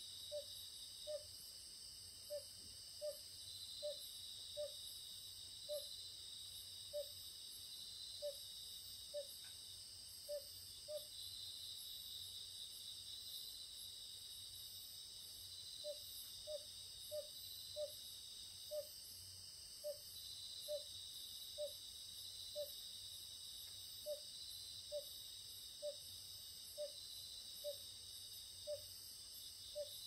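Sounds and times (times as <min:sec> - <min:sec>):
crickets trilling: 0:00.0 - 0:30.0.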